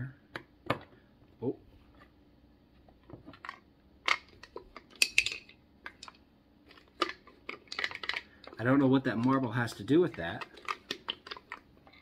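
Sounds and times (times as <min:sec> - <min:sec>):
wooden puzzle clicks and knocks: 0:03.0 - 0:12.0.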